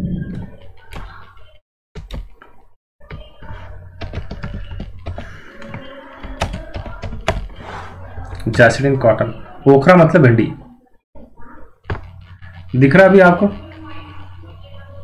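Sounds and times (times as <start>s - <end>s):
steady low hum: 11.2s - 15.0s.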